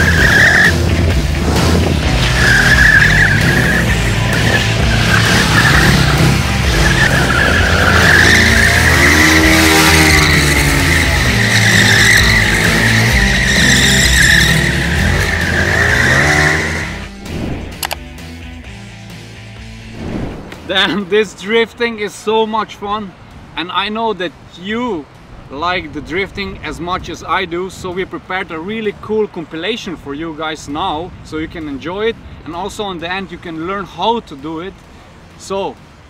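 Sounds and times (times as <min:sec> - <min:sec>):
tyre squealing: 0:00.0 - 0:00.9, 0:02.1 - 0:17.1
motorcycle engine revving: 0:00.0 - 0:17.9
music: 0:00.0 - 0:24.0.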